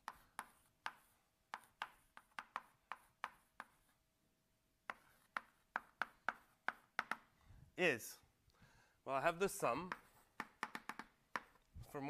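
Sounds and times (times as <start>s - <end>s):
chalk tapping on blackboard: 0.0s - 4.0s, 4.8s - 7.4s, 9.8s - 11.6s.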